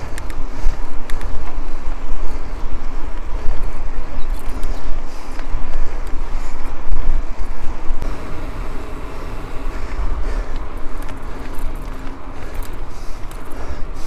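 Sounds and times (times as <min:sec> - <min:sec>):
wind rumble on microphone: 0:00.0 - 0:14.0
tyres rolling over dirt: 0:08.0 - 0:14.0.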